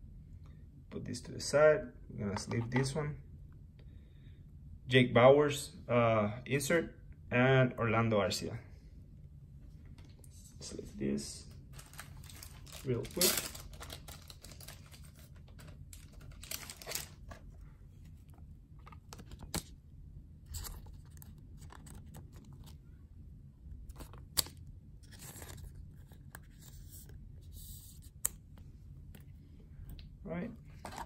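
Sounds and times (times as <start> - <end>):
plastic card sleeve crinkling: 11.5 - 19.8, 20.5 - 22.9, 23.7 - 29.3.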